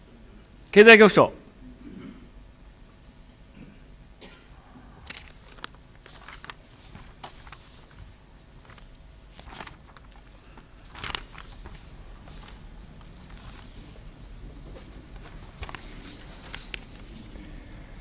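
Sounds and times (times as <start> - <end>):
faint rustles and clicks: 5.0 - 17.5.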